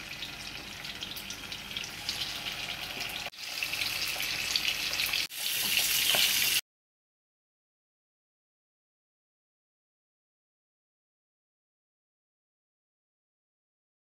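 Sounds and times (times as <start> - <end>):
chicken sizzling in hot oil: 0.0 - 6.6.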